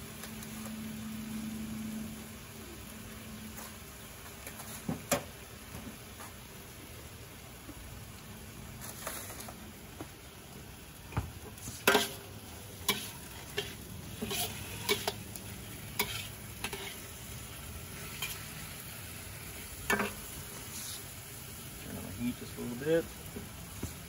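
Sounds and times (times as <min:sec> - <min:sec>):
chicken sizzling in a wok: 0:00.0 - 0:24.0
utensil scraping wok: 0:11.5 - 0:21.2.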